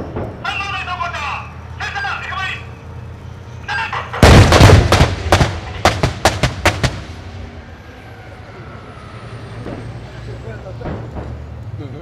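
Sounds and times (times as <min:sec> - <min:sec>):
rapid gunfire volley: 0:04.2 - 0:07.2
rolling echo of gunfire: 0:04.2 - 0:07.5.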